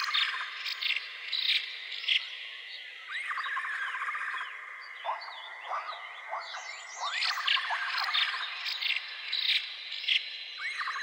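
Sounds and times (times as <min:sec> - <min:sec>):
birds chirping and whistling: 0:03.0 - 0:11.0.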